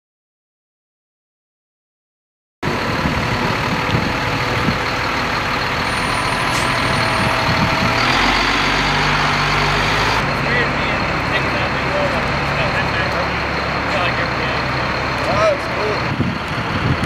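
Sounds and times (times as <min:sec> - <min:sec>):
deep engine hum: 0:02.6 - 0:17.0
diesel truck engines idling: 0:02.6 - 0:17.0.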